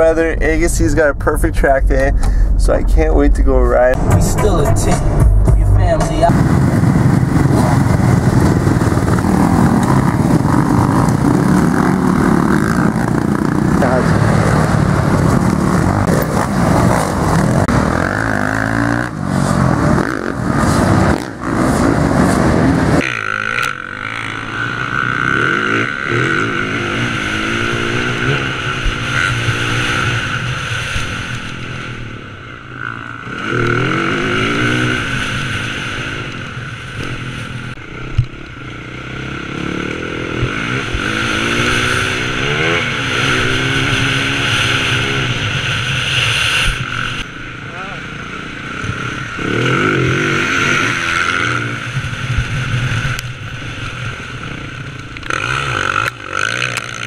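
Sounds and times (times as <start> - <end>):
loud rushing noise: 0.0 - 24.6
motocross bike engine revving: 0.0 - 57.0.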